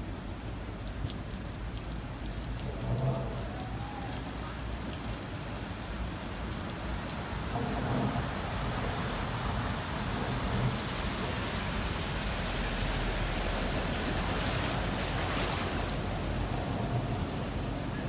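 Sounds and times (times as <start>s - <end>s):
floodwater rushing: 0.0s - 18.0s.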